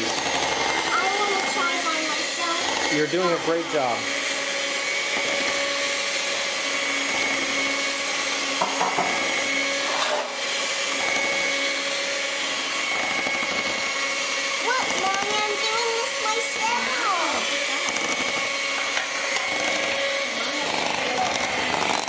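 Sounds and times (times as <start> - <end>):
electric hand mixer whine: 0.0 - 22.0.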